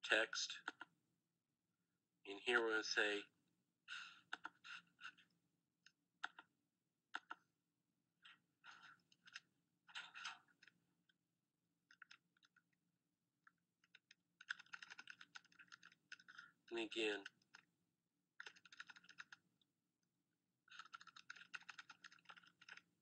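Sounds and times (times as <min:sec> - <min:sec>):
faint computer keyboard typing: 0:00.6 - 0:00.9, 0:05.8 - 0:06.5, 0:07.1 - 0:07.5, 0:08.3 - 0:11.2, 0:11.8 - 0:12.8, 0:13.4 - 0:17.7, 0:18.4 - 0:19.7, 0:20.7 - 0:23.0.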